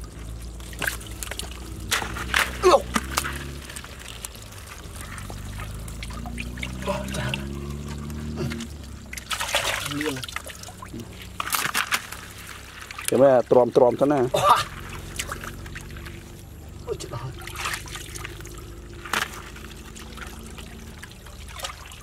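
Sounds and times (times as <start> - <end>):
muddy water trickling and splashing: 0.0 - 22.0.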